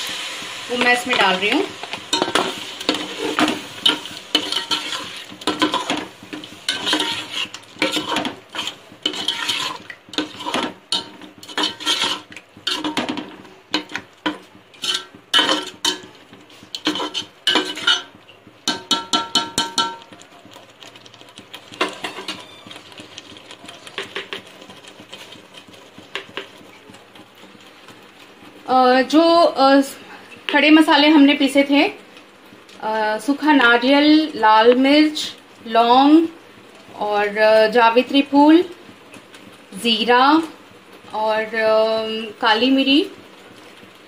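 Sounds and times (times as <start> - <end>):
metal ladle scraping pot: 2.1 - 20.1, 21.7 - 26.4.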